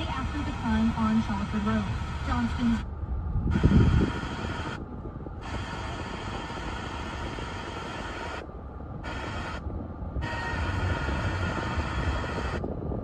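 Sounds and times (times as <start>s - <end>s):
radio static hiss: 0.0s - 2.9s, 5.4s - 8.4s
low rumble: 0.0s - 13.0s.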